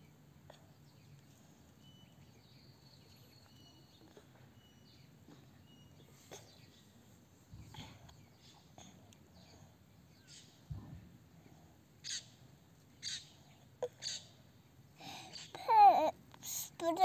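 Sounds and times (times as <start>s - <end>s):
faint background hum: 0.0s - 17.0s.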